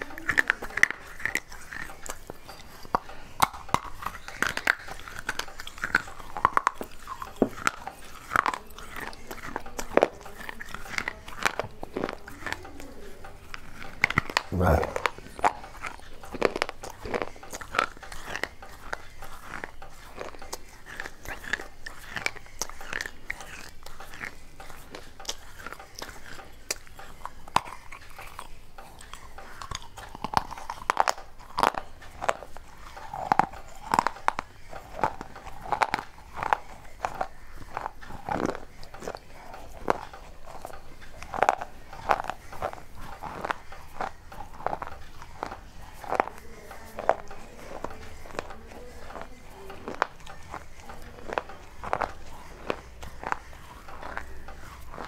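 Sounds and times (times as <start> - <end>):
clay pieces crunching: 13.5 - 55.0.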